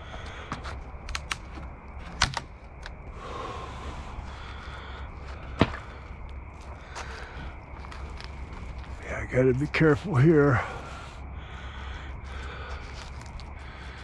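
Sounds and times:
debris rustling: 0:04.3 - 0:09.0
sharp knocks of boards: 0:05.6 - 0:05.9.

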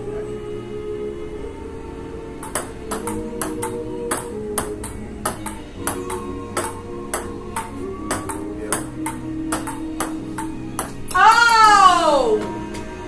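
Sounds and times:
background music: 0:00.0 - 0:13.0
ping-pong ball clicking: 0:02.4 - 0:11.2.

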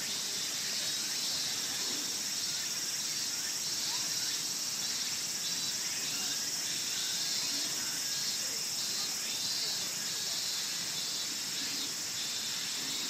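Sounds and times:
insects singing: 0:00.0 - 0:13.0.

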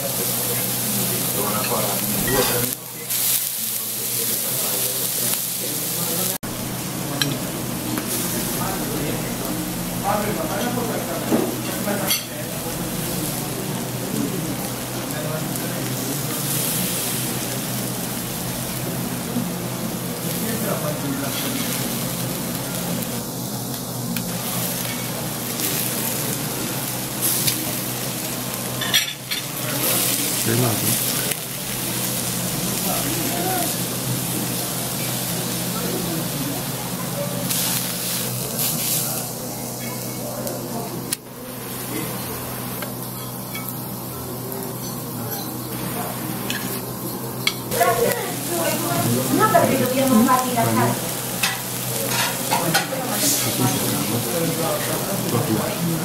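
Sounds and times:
sausage sizzling on hot stone: 0:00.0 - 0:56.0.

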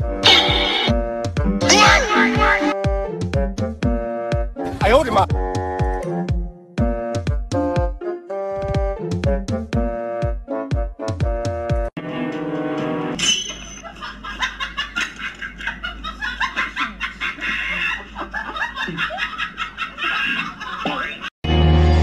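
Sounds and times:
snickering and chuckling: 0:13.8 - 0:21.3.

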